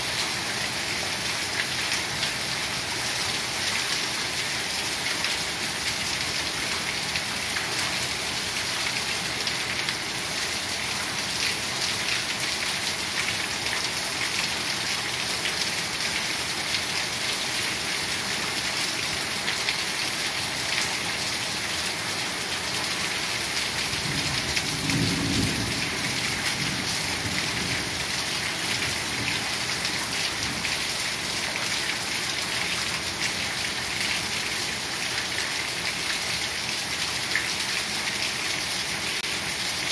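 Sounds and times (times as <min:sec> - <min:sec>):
heavy rain pouring: 0:00.0 - 0:39.9
low rumble of thunder: 0:24.0 - 0:28.0.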